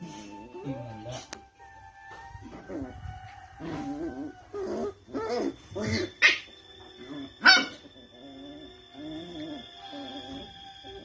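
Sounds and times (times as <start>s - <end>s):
puppies barking: 3.7s - 11.0s.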